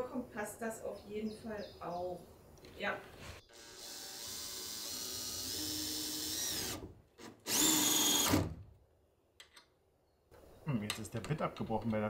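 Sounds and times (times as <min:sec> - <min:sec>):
drill motor whine: 0:03.5 - 0:06.8, 0:07.5 - 0:08.5.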